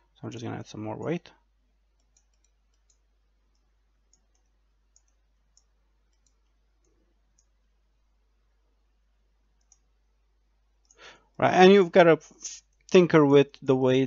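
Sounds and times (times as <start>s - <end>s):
faint computer mouse clicks: 2.0s - 7.6s, 9.6s - 9.9s.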